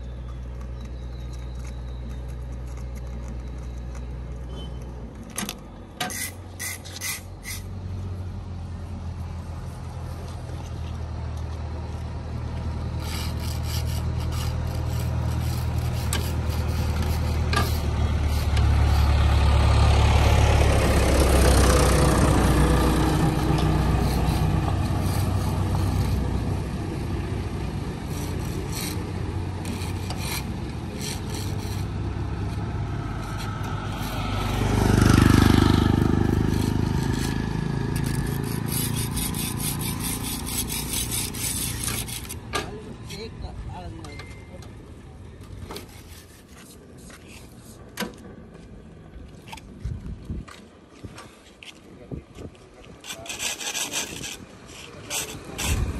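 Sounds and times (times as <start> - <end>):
rough scraping: 0.0 - 8.0, 12.6 - 43.3, 45.4 - 48.0, 52.4 - 55.9
road-marking machine humming: 0.0 - 55.9.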